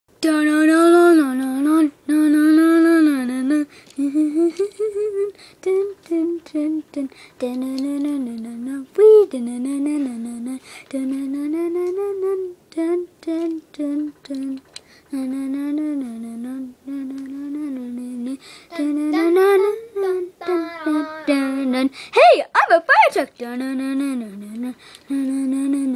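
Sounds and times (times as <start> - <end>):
child humming a tune: 16.9 - 21.9.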